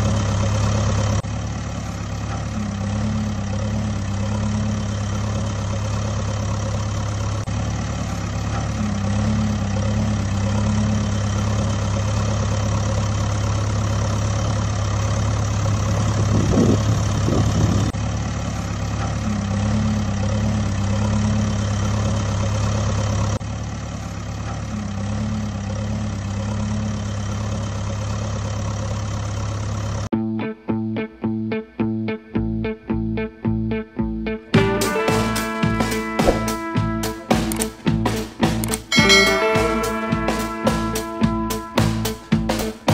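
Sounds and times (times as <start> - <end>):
truck engine idling: 0.0 - 30.1.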